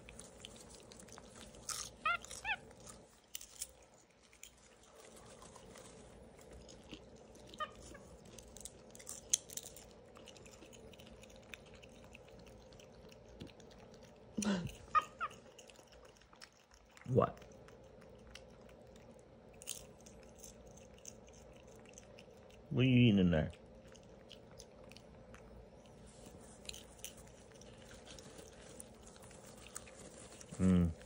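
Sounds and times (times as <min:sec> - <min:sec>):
chewing popcorn: 0:00.0 - 0:31.0
monkey chirping: 0:14.9 - 0:15.4.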